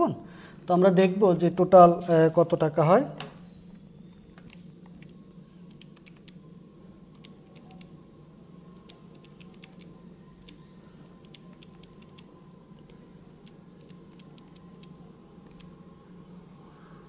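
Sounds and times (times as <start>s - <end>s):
steady low hum: 0.0s - 17.0s
calculator keys clicking: 8.8s - 15.7s.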